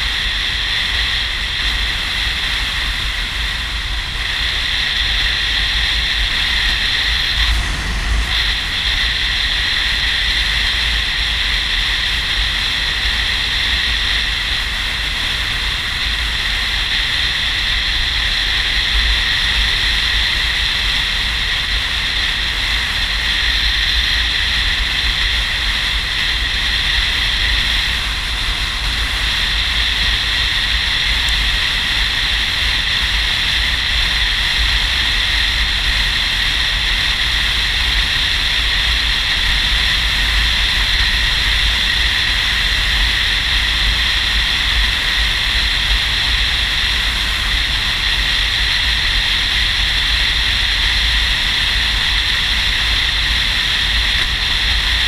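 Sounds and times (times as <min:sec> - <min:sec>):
motorcycle road noise: 0:00.0 - 0:55.0
wind rush on microphone: 0:00.0 - 0:55.0
low rumble: 0:06.2 - 0:11.5.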